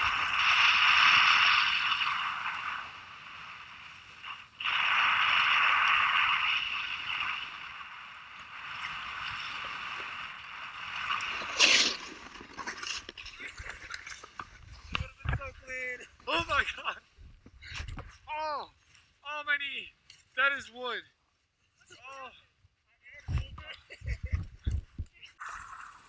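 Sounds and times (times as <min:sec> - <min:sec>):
snowboard scraping on hard snow: 0:04.6 - 0:07.7, 0:08.8 - 0:15.0
snowboard crunching deep snow: 0:04.6 - 0:07.8, 0:08.9 - 0:13.9.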